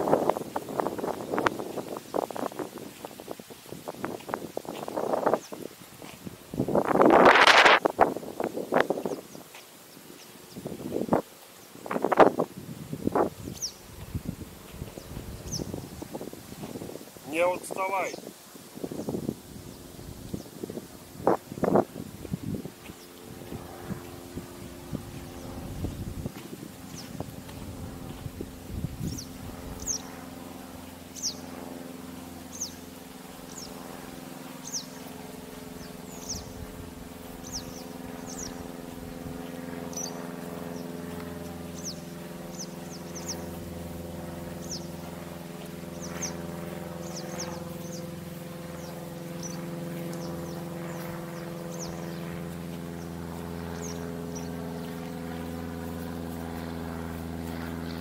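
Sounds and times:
small birds chirping: 0:00.5 - 0:06.2, 0:08.5 - 0:12.4, 0:13.1 - 0:31.6, 0:32.4 - 0:58.0
low engine drone: 0:19.3 - 0:58.0.

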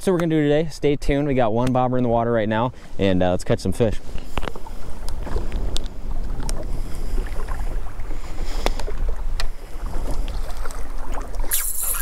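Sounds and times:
small waves lapping against boat: 0:00.0 - 0:12.0
wind rumble on microphone: 0:03.6 - 0:11.5.

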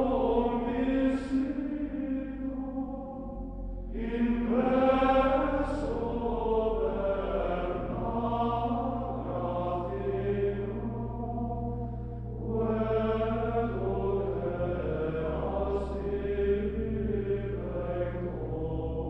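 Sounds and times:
low steady drone: 0:00.0 - 0:19.0
slow choral chanting: 0:00.0 - 0:19.0.

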